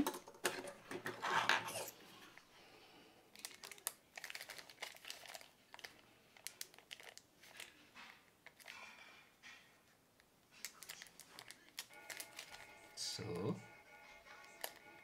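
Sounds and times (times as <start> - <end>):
plastic packet crinkling: 3.4 - 9.1, 10.6 - 12.6, 14.4 - 14.8.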